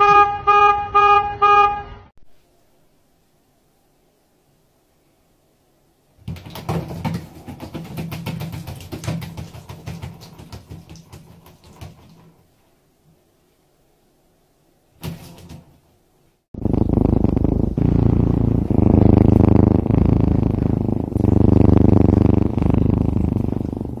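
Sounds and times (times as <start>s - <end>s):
cat purring loudly: 16.6s - 24.0s.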